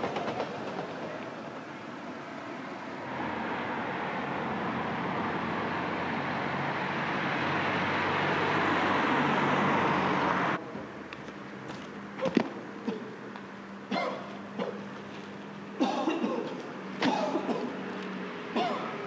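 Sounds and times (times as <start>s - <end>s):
car driving past: 2.5s - 10.6s.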